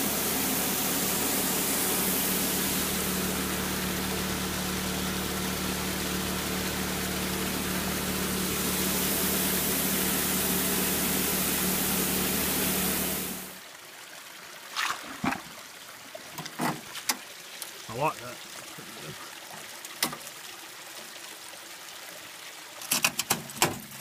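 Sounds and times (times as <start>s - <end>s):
small water pump engine humming: 0.0s - 14.0s
water rushing through sluice box: 0.0s - 24.0s.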